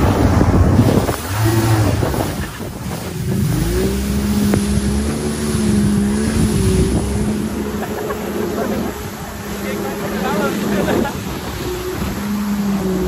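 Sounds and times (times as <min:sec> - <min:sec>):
jet ski engine running: 0:00.0 - 0:13.0
wind buffeting microphone: 0:00.0 - 0:13.0
water spray hissing: 0:00.8 - 0:09.9.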